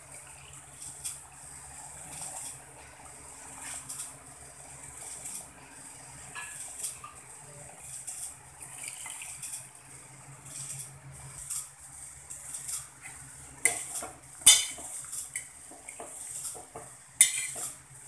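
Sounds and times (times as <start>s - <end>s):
spatula stirring and scraping pot: 0.0s - 18.0s
metal clanks on steel pot: 13.6s - 17.8s.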